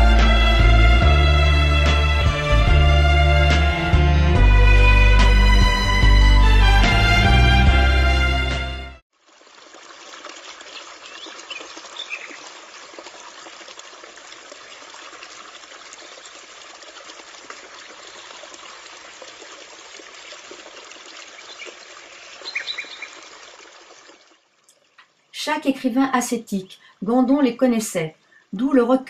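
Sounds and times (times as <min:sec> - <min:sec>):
music: 0:00.0 - 0:09.0
trickling water noise: 0:09.1 - 0:27.1
faint high chirps: 0:22.4 - 0:23.2.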